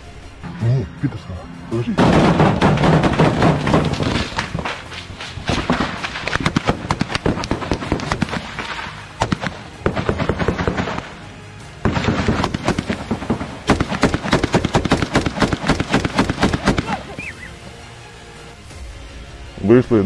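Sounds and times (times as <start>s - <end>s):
machine-gun fire: 2.0s - 11.1s, 11.8s - 16.9s.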